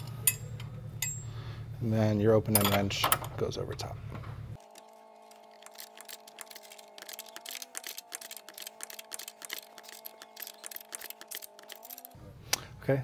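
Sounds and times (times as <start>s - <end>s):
wrench clicking on metal nut: 5.6s - 12.1s.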